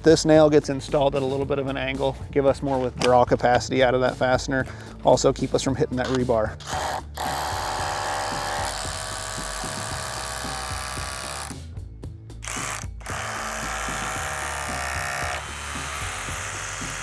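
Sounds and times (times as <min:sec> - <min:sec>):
background music: 0:00.0 - 0:17.0
cordless drill motor whine: 0:06.6 - 0:11.6, 0:12.4 - 0:17.0.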